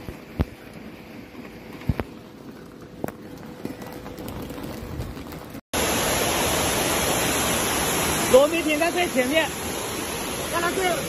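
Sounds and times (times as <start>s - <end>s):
rush of floodwater: 5.8s - 11.0s.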